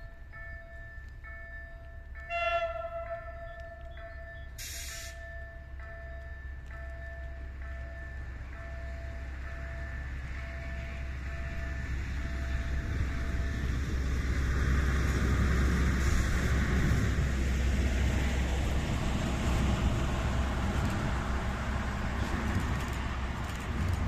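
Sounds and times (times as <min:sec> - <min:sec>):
diesel locomotive engine rumble: 0:00.0 - 0:24.0
train wheels on rails: 0:00.0 - 0:24.0.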